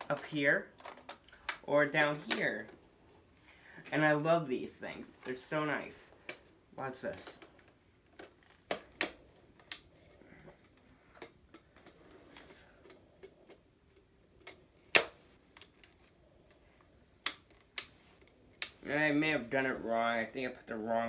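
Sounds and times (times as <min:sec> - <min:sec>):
plastic attachments clicking and snapping: 0:00.0 - 0:02.8.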